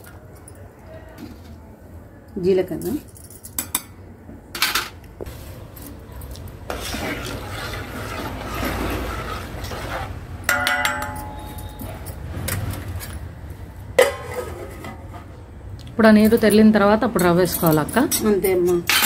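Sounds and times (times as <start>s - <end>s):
utensils clinking on metal pot: 5.8s - 13.3s, 14.0s - 15.0s, 16.1s - 19.0s.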